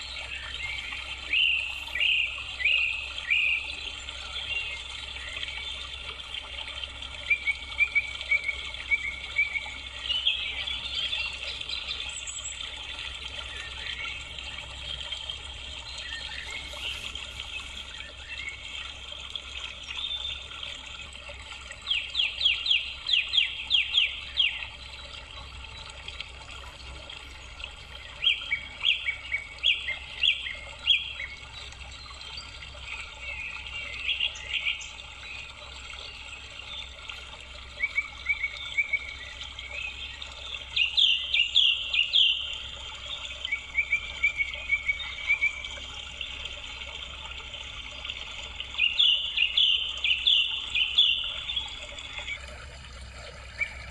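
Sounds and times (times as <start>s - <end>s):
songbird chirping and trilling: 0.0s - 5.8s, 21.8s - 26.0s, 27.2s - 37.0s, 37.7s - 45.6s, 48.7s - 52.5s.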